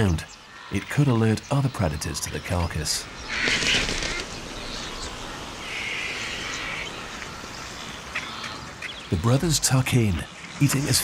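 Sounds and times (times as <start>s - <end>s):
vultures harsh rasping calls: 3.1s - 9.2s
wings flapping: 3.3s - 4.5s.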